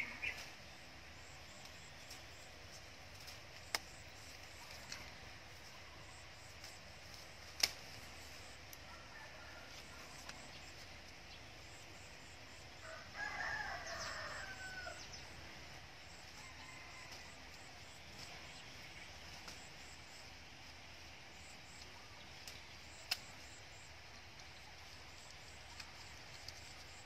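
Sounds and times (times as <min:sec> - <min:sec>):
scissors snipping a stem: 0:07.6 - 0:07.9, 0:22.5 - 0:23.3
rooster crowing: 0:08.8 - 0:10.2, 0:12.8 - 0:15.2, 0:16.4 - 0:17.4.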